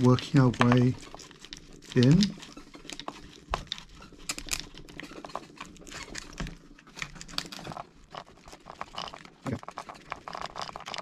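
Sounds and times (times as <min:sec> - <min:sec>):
plastic card crackling and scraping: 0:00.0 - 0:11.0.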